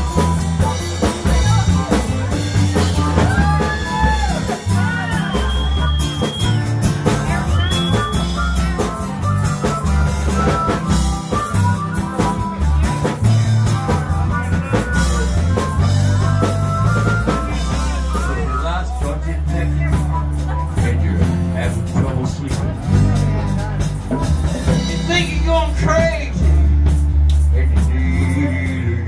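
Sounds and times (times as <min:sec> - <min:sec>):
harmonica: 0:00.0 - 0:20.8
acoustic guitars: 0:00.0 - 0:29.0
drum kit: 0:00.0 - 0:29.0.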